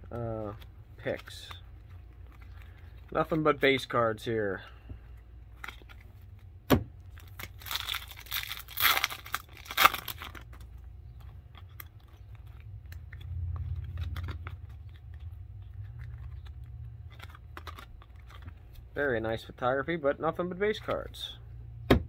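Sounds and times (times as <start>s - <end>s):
plastic wrapper tearing and crinkling: 0.0s - 4.2s, 5.5s - 19.0s
card handling: 0.0s - 19.6s
low hum: 4.6s - 19.6s.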